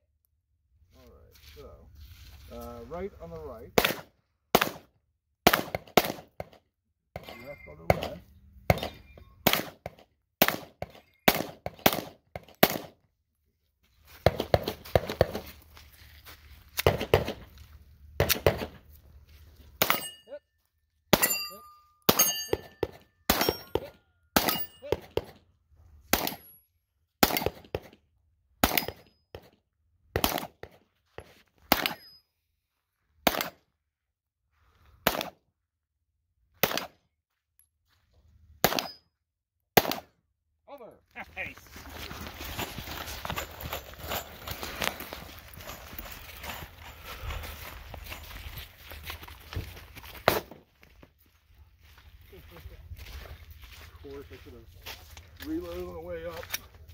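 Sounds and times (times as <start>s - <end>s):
rapid pistol shots: 3.8s - 6.6s, 8.7s - 12.9s, 27.2s - 27.9s, 28.6s - 29.0s, 30.2s - 30.8s, 33.2s - 33.6s, 35.0s - 35.4s, 36.6s - 37.0s, 38.6s - 39.0s, 39.8s - 40.1s
steel targets ringing: 19.8s - 20.3s, 21.2s - 24.8s.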